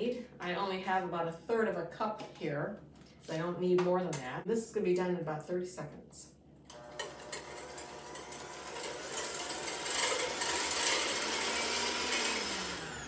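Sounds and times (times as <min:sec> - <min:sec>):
electric hand mixer whipping cream: 0:06.7 - 0:13.0.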